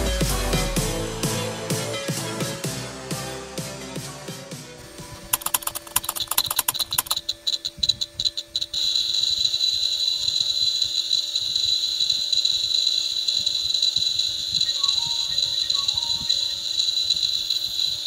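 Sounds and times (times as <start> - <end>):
piezo buzzer ticking and beeping: 5.3 - 18.0.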